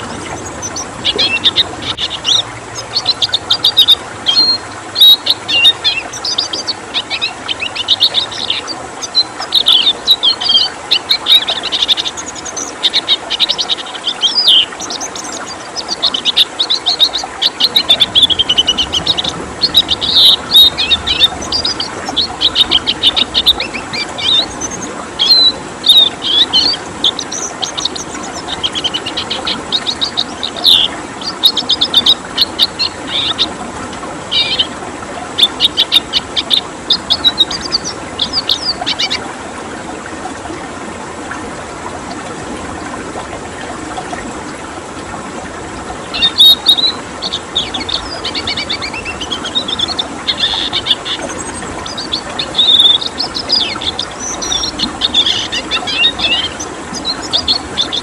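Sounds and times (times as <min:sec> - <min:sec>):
bird twittering and trilling: 0:00.0 - 0:33.5, 0:34.3 - 0:34.7, 0:35.4 - 0:39.2, 0:46.1 - 0:58.0
flowing water: 0:00.0 - 0:58.0.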